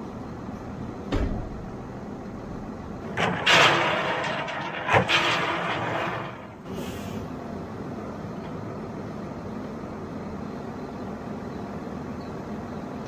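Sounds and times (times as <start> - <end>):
pellets pouring into metal bunk: 3.1 - 7.0.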